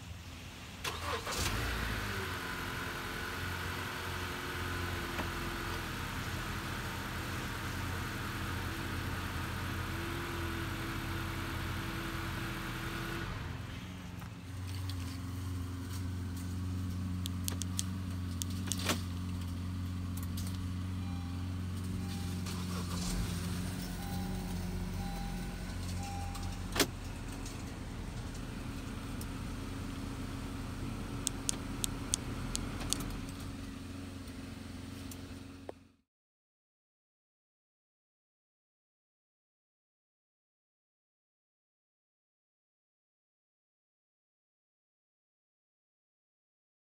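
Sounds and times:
car engine idling: 13.6 - 36.0
sharp clicks: 17.2 - 19.0, 31.2 - 33.4
faint short beeps: 21.0 - 23.0, 23.9 - 26.7.

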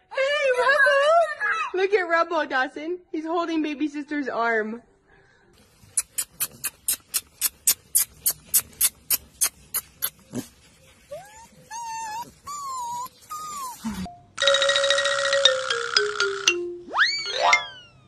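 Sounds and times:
puppies whining: 5.9 - 14.2.

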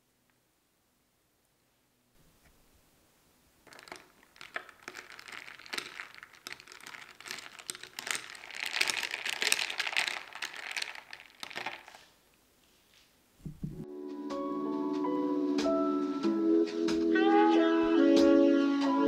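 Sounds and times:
ice cubes clinking in glass: 3.6 - 12.1.

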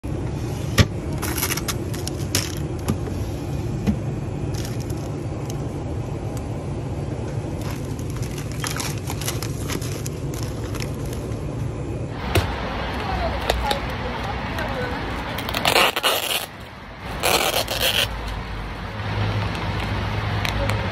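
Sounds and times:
refrigeration hum: 0.0 - 20.9
crinkly rustles and clicks: 7.6 - 11.4.

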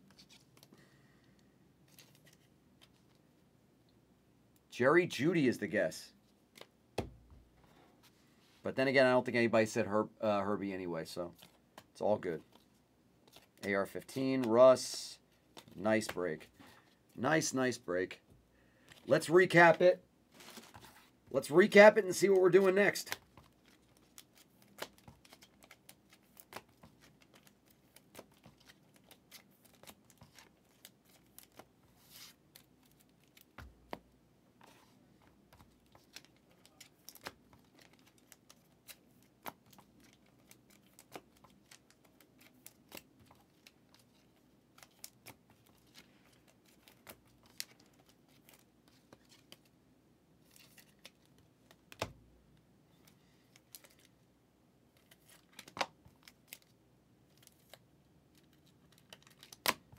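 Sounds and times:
trading cards clicking and rustling: 1.9 - 3.1, 11.3 - 16.8, 20.4 - 34.0, 34.6 - 49.7, 50.4 - 52.2, 53.0 - 54.1, 58.4 - 59.9.

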